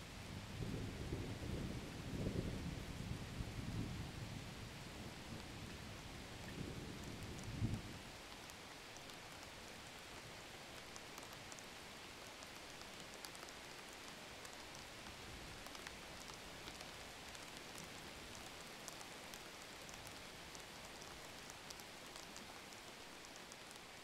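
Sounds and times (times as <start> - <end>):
rain-like hiss: 0.0 - 24.0
faint irregular ticks: 5.0 - 24.0.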